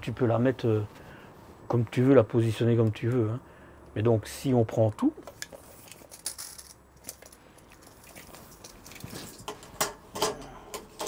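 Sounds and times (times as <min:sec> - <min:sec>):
tape measure clicks and rustles: 0:05.2 - 0:10.0.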